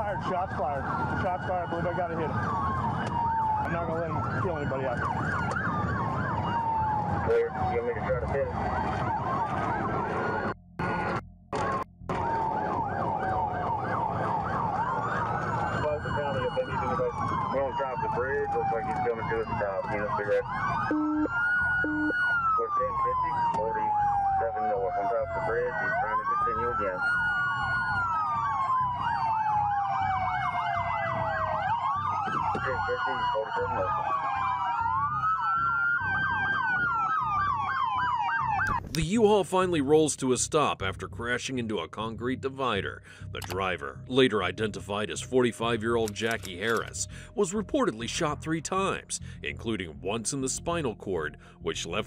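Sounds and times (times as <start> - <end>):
lower yelping siren: 0.0 - 38.8
low rumble of vehicles: 0.0 - 39.3
police siren yelping and wailing: 0.0 - 39.9, 45.3 - 52.0.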